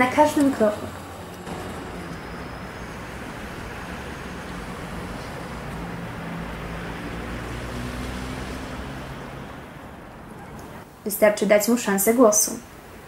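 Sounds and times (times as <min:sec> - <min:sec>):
rumble of engines and tyres: 0:00.0 - 0:10.9
cars passing: 0:00.0 - 0:11.1.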